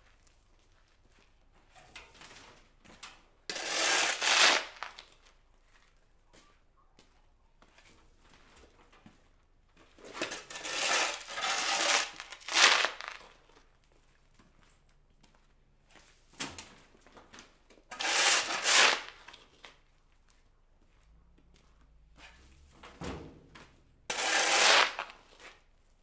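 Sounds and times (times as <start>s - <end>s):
shovel scraping dirt on concrete: 3.5s - 5.1s, 10.0s - 13.3s, 17.9s - 19.5s, 24.1s - 25.6s.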